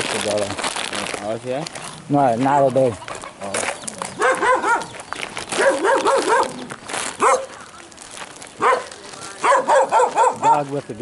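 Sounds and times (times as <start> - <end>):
dog barking: 4.2 - 4.9, 5.6 - 6.6, 7.2 - 7.5, 8.6 - 10.6.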